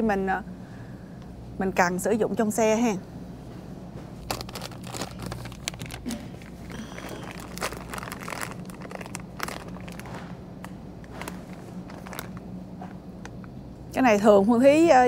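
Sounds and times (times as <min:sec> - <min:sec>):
low steady hum: 0:00.0 - 0:15.0
plastic packaging crinkling: 0:04.2 - 0:12.6.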